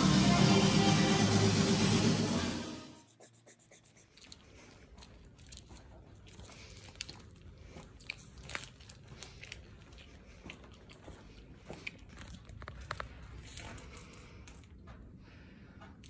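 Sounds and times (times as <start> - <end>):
crunching and crinkling clicks: 4.1 - 15.1.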